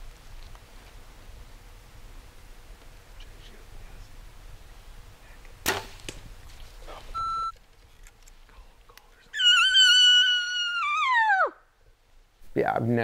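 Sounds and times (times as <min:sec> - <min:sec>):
elk bugling: 0:09.4 - 0:11.6.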